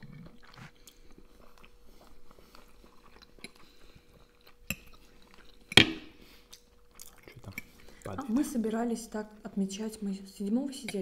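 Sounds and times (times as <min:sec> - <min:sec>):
quiet chewing of noodles: 0:00.0 - 0:08.2.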